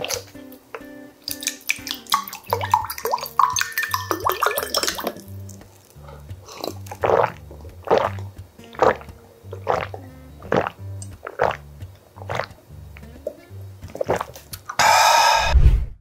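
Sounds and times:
background music with steady beat: 0.0 - 15.5
water pouring into glass: 1.3 - 5.6
gulping swallows: 5.9 - 12.6, 13.2 - 14.8.

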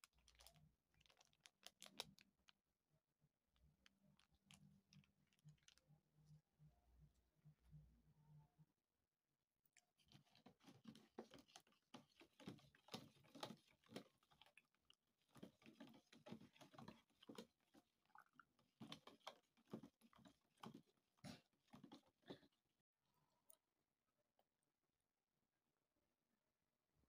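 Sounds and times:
teaspoon stirring in plastic cup: 10.0 - 22.4.

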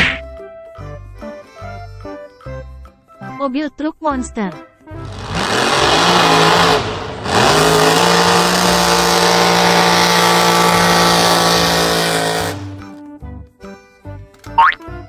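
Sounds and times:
truck engine revving: 5.0 - 12.9.

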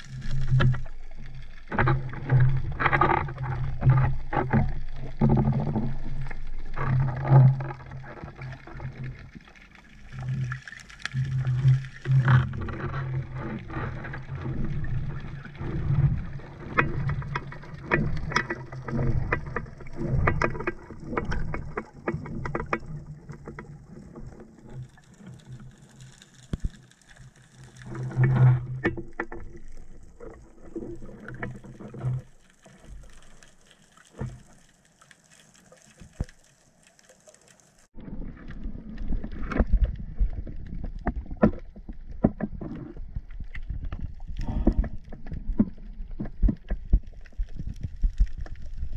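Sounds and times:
water splashing and lapping: 0.0 - 48.9
muffled underwater knocks and thumps: 1.6 - 9.1, 11.4 - 24.8, 38.0 - 48.9.

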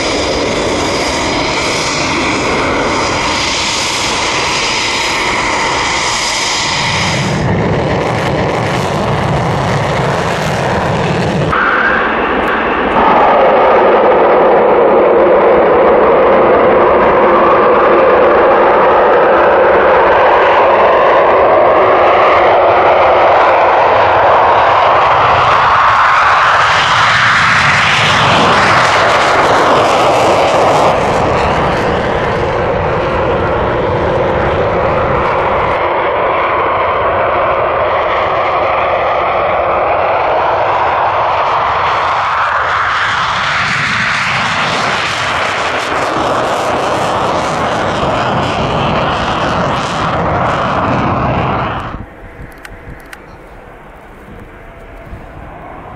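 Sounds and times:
jets passing overhead: 0.0 - 55.9.

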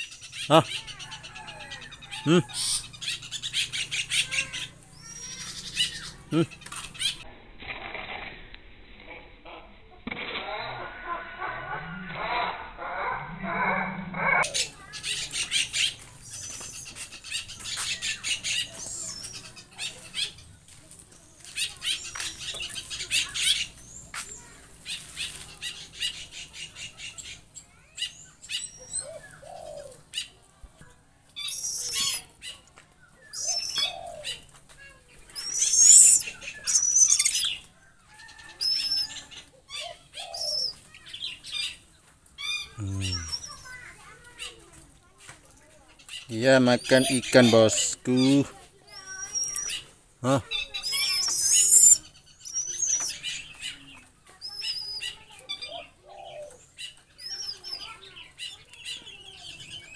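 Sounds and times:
birds chattering: 0.0 - 7.3, 9.5 - 59.9
birds chirping: 0.0 - 7.3, 9.4 - 59.9
low bird calls: 21.5 - 30.4, 31.4 - 41.8, 42.4 - 44.7, 46.1 - 59.9.

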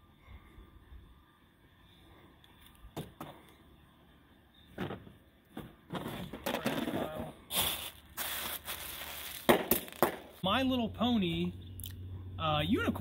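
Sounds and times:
plastic wrapping crinkling: 7.5 - 10.2.

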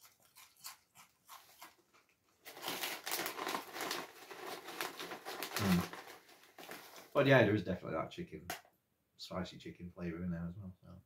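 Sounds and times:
crisps being chewed: 0.0 - 7.0
foil crisp packet crinkling: 0.0 - 7.2.

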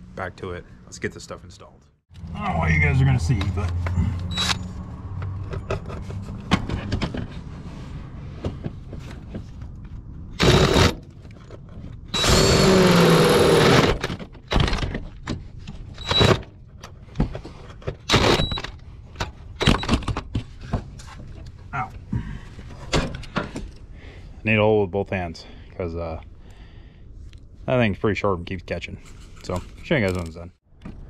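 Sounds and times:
cordless drill drilling sheet metal: 10.4 - 11.0, 12.1 - 14.1, 16.0 - 16.4, 18.1 - 18.6.

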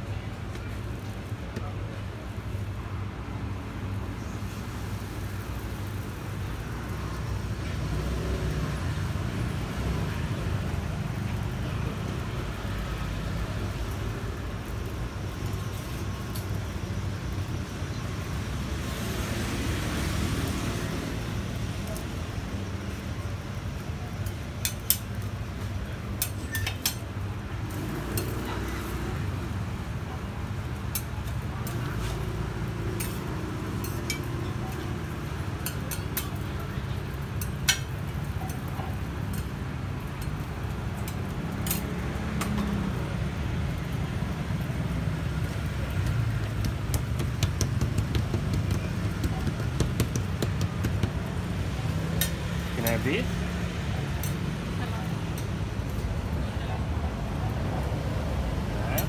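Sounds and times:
low traffic rumble: 0.0 - 59.0
metal spatula clicking on griddle: 24.2 - 25.2, 26.2 - 27.0, 28.1 - 28.4, 32.9 - 34.4, 35.6 - 36.4, 39.3 - 42.7.

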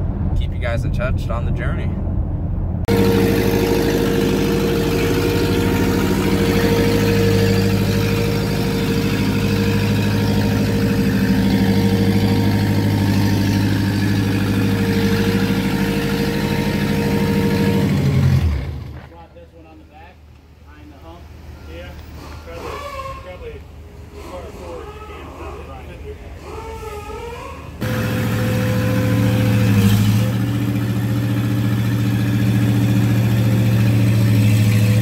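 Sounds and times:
diesel engine running steadily: 2.1 - 19.2, 27.8 - 35.0.

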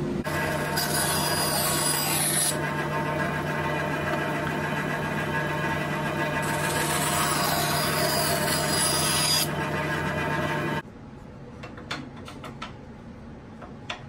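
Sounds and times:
bandsaw humming: 0.2 - 10.8
saw rasping through wood: 0.3 - 2.7, 4.6 - 10.0.

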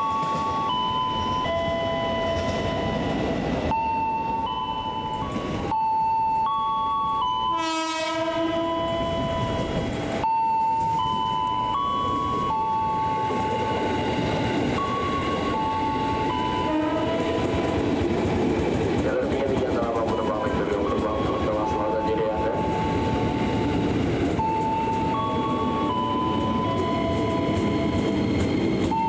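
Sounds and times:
train horn blast: 7.5 - 9.0, 16.6 - 17.8.

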